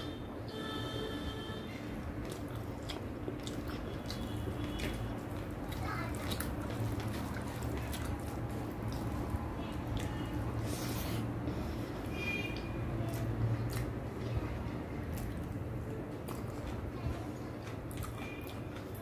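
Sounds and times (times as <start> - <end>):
wet sticky clicks of food mixed by hand: 2.0 - 10.5, 12.5 - 19.0
chewing: 2.0 - 11.8, 12.5 - 14.4, 15.0 - 19.0.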